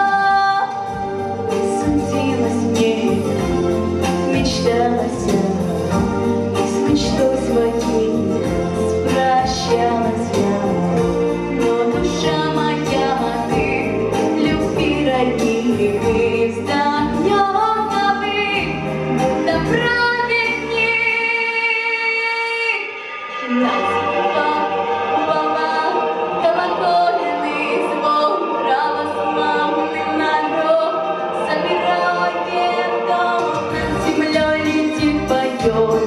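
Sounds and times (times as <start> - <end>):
amplified backing track: 0.0 - 36.0.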